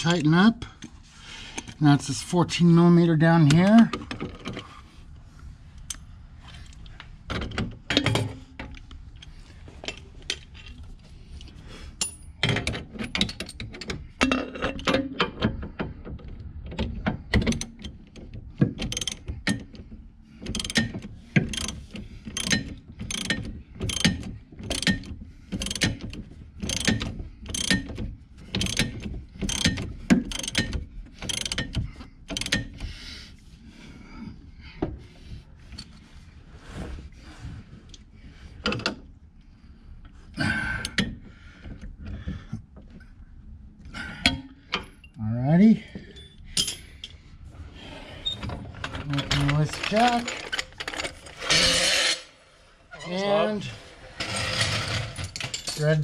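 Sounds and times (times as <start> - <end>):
ratchet wrench clicking: 21.5 - 26.0, 28.6 - 32.7.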